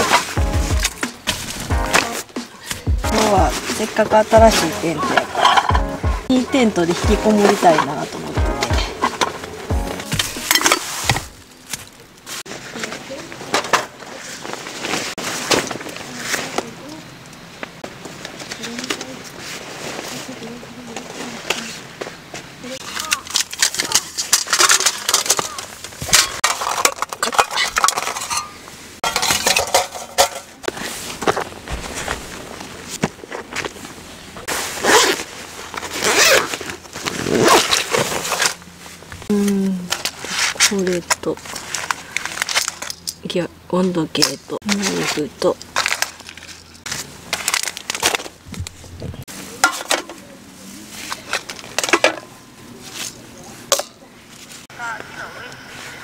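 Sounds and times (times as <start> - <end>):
handling rustles: 0.0 - 43.2
rustling of fabric pouch: 30.7 - 39.1.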